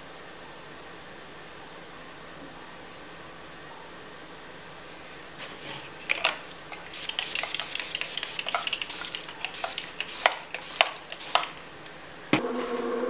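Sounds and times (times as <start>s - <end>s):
spray bottle hissing sprays: 6.0s - 11.8s.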